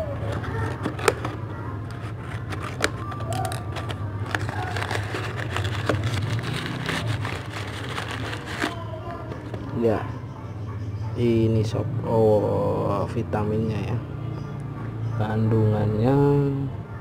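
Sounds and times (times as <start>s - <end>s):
crumpled paper crinkling: 0.2s - 9.5s
sharp clicks and crackles: 0.2s - 9.6s
scissors snipping taped parcel: 0.5s - 8.8s.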